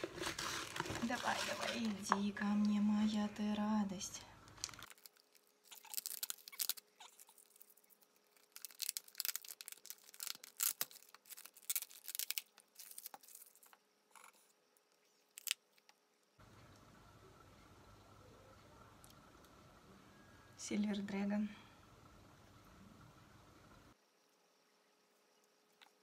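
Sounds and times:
plastic packaging crinkling: 0:00.0 - 0:02.4, 0:04.4 - 0:13.8.

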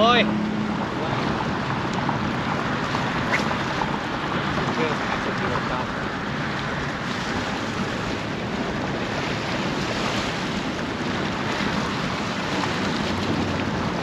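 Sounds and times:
waves splashing against rocks: 0:00.0 - 0:14.0
wind buffeting microphone: 0:00.0 - 0:14.0.

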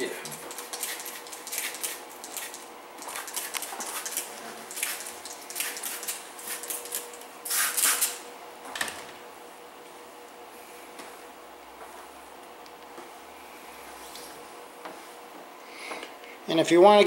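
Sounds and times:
spray bottle hissing bursts: 0:07.4 - 0:08.2.

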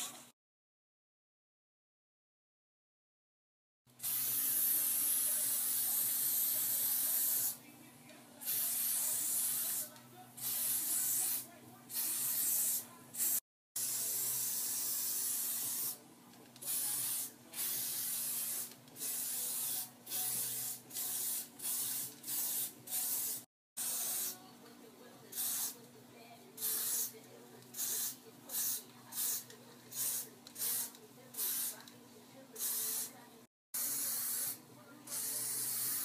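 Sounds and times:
spray paint can hissing: 0:04.0 - 0:07.6, 0:08.5 - 0:16.0, 0:16.7 - 0:24.4, 0:25.3 - 0:25.8, 0:26.6 - 0:27.1, 0:27.7 - 0:31.8, 0:32.6 - 0:33.1, 0:33.8 - 0:36.0.

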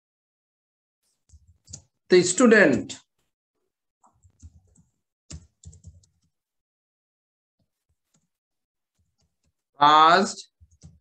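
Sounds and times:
computer keyboard typing: 0:01.2 - 0:02.0, 0:04.0 - 0:06.3, 0:10.6 - 0:11.0.

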